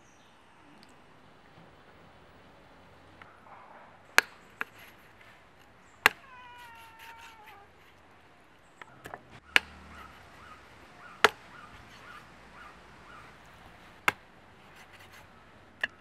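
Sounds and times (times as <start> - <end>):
drawn-out animal call: 0.6 - 16.0
knife chopping on wooden block: 8.9 - 10.4, 11.2 - 16.0.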